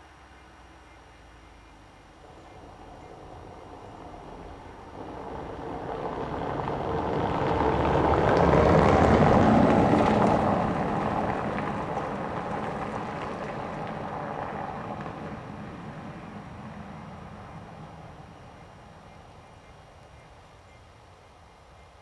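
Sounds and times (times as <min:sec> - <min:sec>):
car driving over cobblestones: 0:02.0 - 0:19.4.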